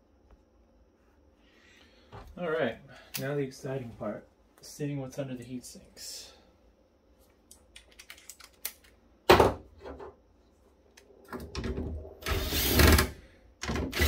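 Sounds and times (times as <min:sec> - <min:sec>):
screwdriver motor whirring: 0:12.2 - 0:14.0.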